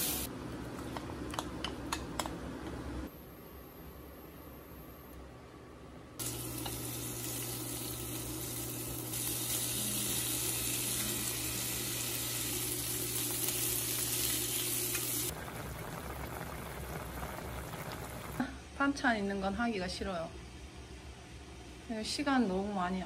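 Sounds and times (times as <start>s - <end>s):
meat sizzling in a frying pan: 6.2s - 15.3s
pot of soup bubbling: 15.3s - 18.4s.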